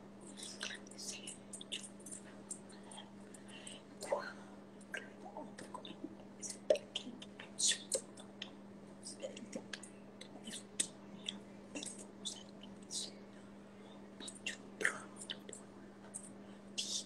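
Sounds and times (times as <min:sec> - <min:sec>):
faint steady hum: 0:00.0 - 0:17.0
tongue clicks: 0:00.3 - 0:02.8
lip smacks: 0:00.3 - 0:04.1.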